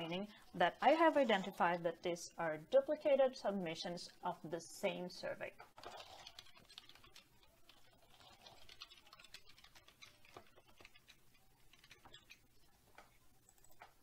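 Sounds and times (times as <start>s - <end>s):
keyboard typing: 5.8s - 14.0s.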